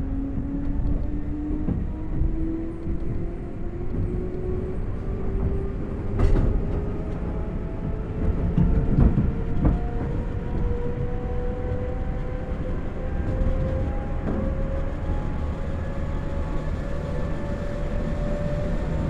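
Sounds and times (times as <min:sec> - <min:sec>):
wheels rumbling on rail: 0:00.0 - 0:19.0.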